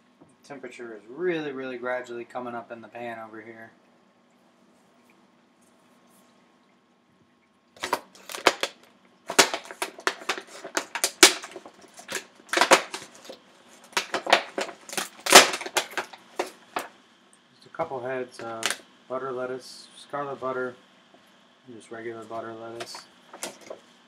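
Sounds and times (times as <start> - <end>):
plastic container crackling: 7.8 - 16.9, 18.4 - 18.8, 22.7 - 23.9.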